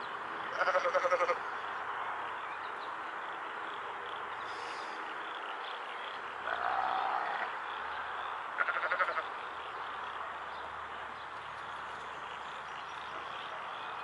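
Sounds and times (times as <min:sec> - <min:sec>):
chorus of calling animals: 0:06.4 - 0:09.4.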